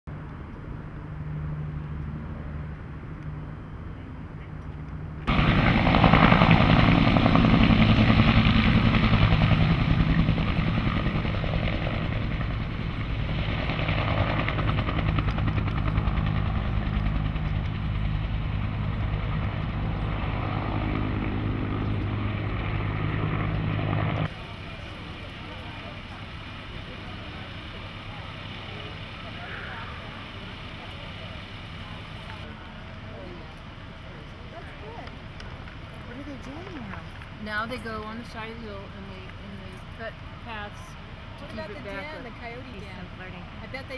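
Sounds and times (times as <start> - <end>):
low hum: 0.1 - 38.2
helicopter rotor chopping: 5.2 - 43.9.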